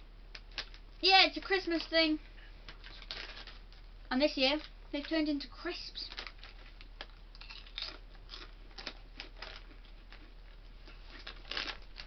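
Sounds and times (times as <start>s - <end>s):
crisps being chewed: 6.0s - 12.0s.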